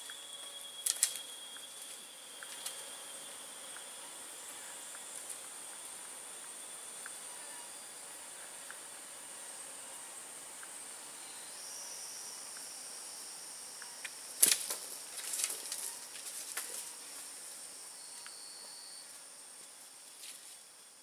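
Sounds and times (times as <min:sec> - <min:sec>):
insects droning: 0:00.0 - 0:21.0
rustling in dry leaves: 0:14.4 - 0:17.4.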